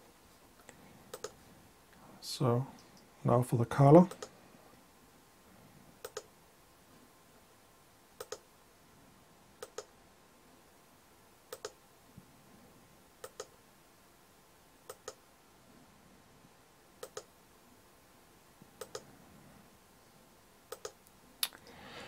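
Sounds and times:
computer mouse button clicking: 0:01.1 - 0:01.3, 0:06.0 - 0:06.3, 0:08.2 - 0:08.4, 0:09.6 - 0:09.9, 0:11.5 - 0:11.8, 0:13.2 - 0:13.5, 0:17.0 - 0:17.3, 0:18.8 - 0:19.0, 0:20.7 - 0:21.0.

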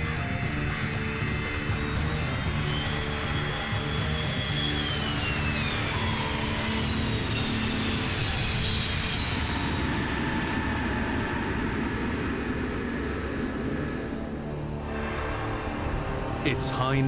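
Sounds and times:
jet engines whining: 0:00.0 - 0:17.0.

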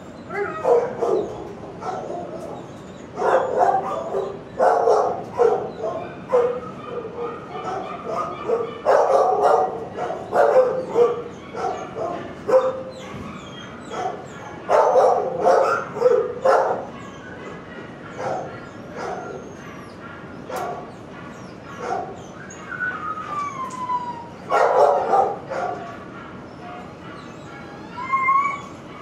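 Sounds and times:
dog whining: 0:00.0 - 0:29.0
dogs barking: 0:00.2 - 0:29.0.

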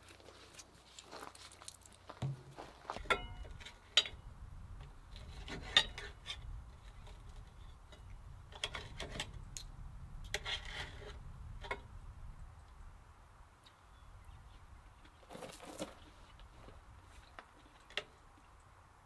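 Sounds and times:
low steady rumble: 0:03.0 - 0:15.0
ringing clink: 0:03.1 - 0:03.5.

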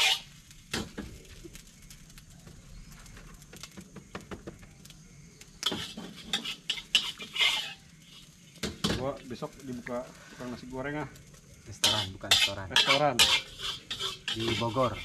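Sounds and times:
metal spatula scraping wok: 0:00.0 - 0:00.4, 0:05.6 - 0:09.1, 0:11.8 - 0:15.0.

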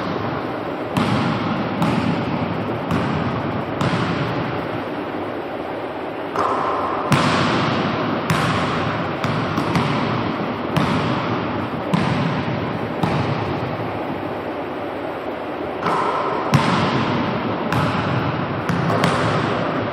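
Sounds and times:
basketball bouncing on hardwood floor: 0:01.0 - 0:04.3, 0:07.1 - 0:13.5, 0:15.9 - 0:19.6.

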